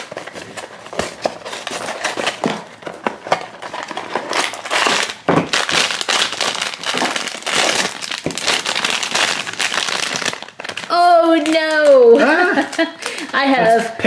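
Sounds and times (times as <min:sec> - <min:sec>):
foil bag crinkling: 0:00.0 - 0:13.8.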